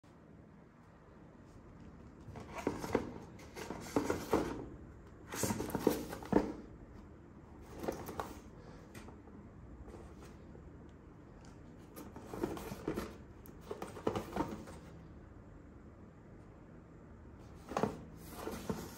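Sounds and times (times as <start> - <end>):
cardboard box scraping and rustling: 2.4 - 4.7, 5.3 - 6.6, 12.0 - 14.8, 17.6 - 18.9.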